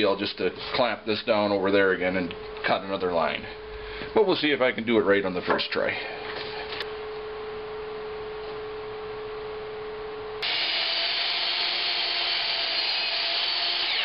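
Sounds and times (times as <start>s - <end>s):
low steady hum: 0.0s - 10.4s
miter saw whining: 10.4s - 14.0s.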